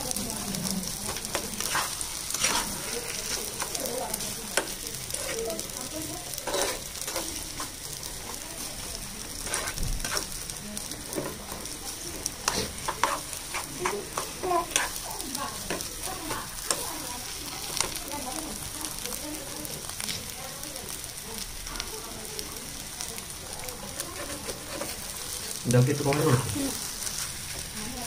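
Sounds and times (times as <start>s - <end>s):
potato sizzling in oil: 0.0s - 28.0s
metal spatula scraping pan: 1.1s - 5.4s, 6.4s - 7.8s, 9.4s - 10.4s, 12.4s - 16.8s, 24.1s - 25.2s.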